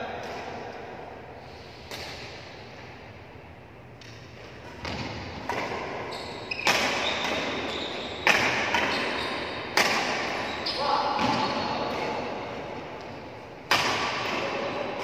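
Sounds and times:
rackets hitting shuttlecock: 4.0 - 10.5, 13.0 - 14.7.

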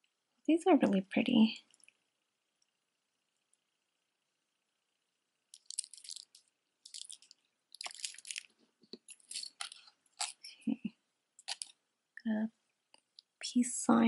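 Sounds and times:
beads clicking together: 5.5 - 10.5, 11.4 - 11.8
jewelry clattering: 5.5 - 10.5, 11.4 - 11.7.

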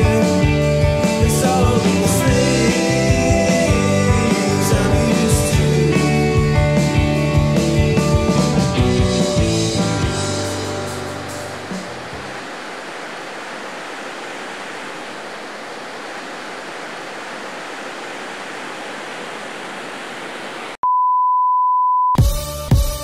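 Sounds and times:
music: 0.0 - 12.4, 22.1 - 23.0
ocean surf breaking: 9.4 - 20.8.

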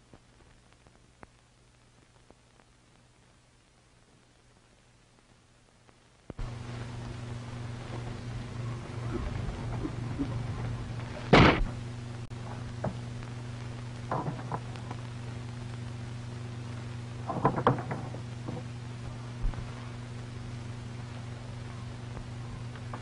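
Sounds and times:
low hum of film soundtrack: 0.0 - 23.0
loud thump: 11.3 - 11.8
knocks and clatters: 14.0 - 15.0, 17.2 - 18.7.

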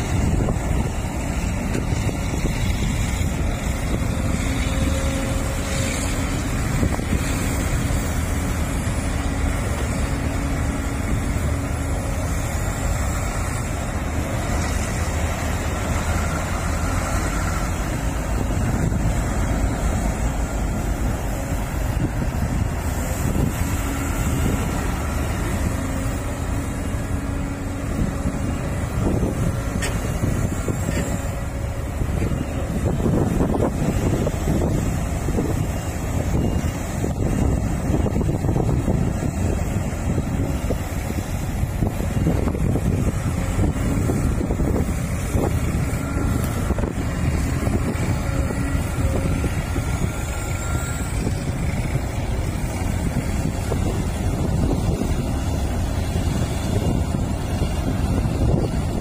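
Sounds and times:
excavator diesel engine running: 0.0 - 59.0
wind buffeting microphone: 0.0 - 59.0.

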